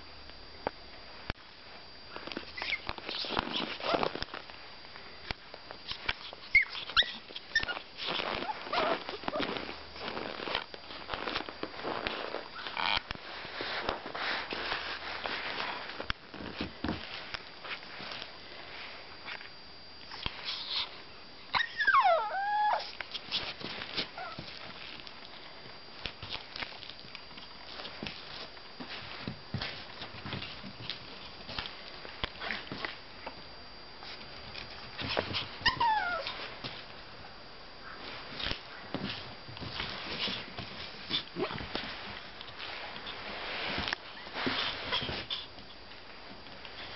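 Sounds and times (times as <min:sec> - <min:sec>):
puppy whining: 0:02.5 - 0:04.2, 0:05.9 - 0:09.8, 0:20.1 - 0:23.0, 0:24.0 - 0:24.6, 0:35.3 - 0:36.5, 0:44.1 - 0:45.5
rustling and scuffing: 0:05.6 - 0:19.5, 0:22.8 - 0:33.1, 0:34.0 - 0:37.0, 0:37.8 - 0:46.9.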